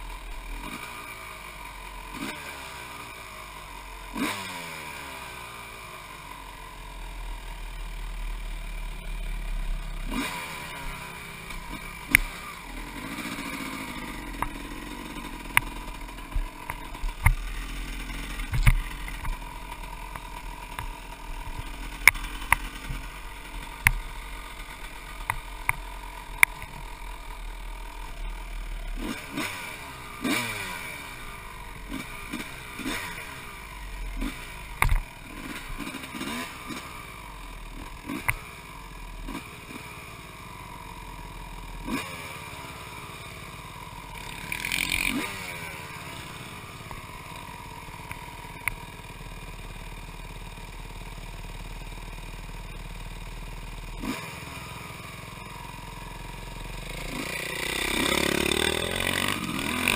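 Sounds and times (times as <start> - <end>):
motorcycle engine revving: 0.0 - 59.9
sharp clacks and knocks: 18.3 - 23.1.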